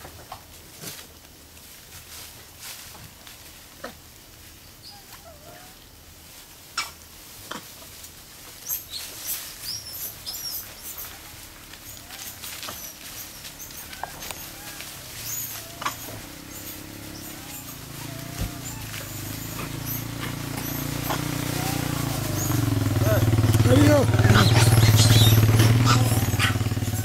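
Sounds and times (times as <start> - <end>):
high animal chirps: 8.7 - 27.0.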